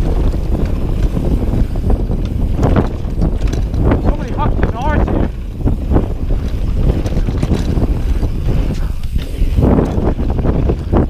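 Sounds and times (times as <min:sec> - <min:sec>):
bike knocks and rattles: 0:00.0 - 0:11.0
tyres rolling over dirt: 0:00.0 - 0:11.0
wind buffeting microphone: 0:00.0 - 0:11.0.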